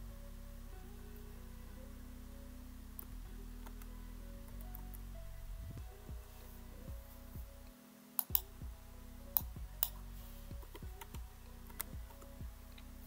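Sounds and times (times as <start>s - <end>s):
quiet music with plucked notes: 0.0s - 13.0s
keyboard and mouse clicking: 8.2s - 8.5s.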